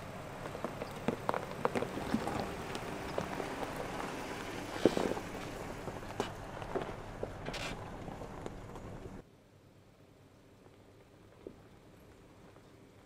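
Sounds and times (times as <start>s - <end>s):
tyres crunching over dirt: 0.0s - 9.2s
low engine hum: 0.0s - 13.0s.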